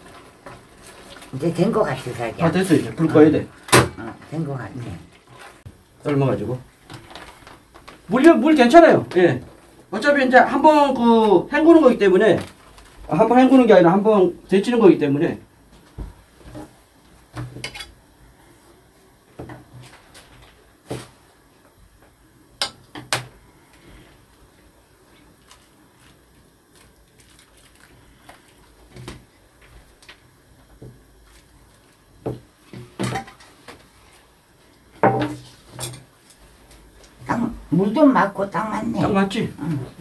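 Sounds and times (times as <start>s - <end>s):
kitchenware knocking and clinking: 35.0s - 36.0s.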